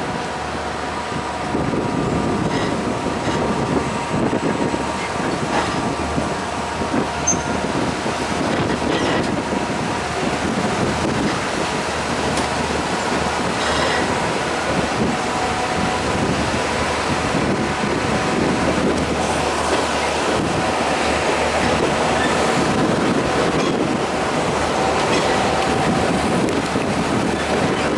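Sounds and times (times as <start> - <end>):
train rumbling on track: 0.0 - 27.9
wheel squeal: 7.2 - 7.6.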